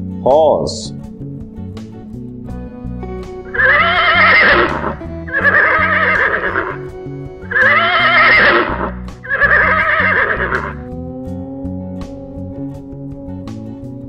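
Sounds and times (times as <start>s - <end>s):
guitar music: 0.0s - 14.0s
horse whinnying: 3.5s - 10.9s.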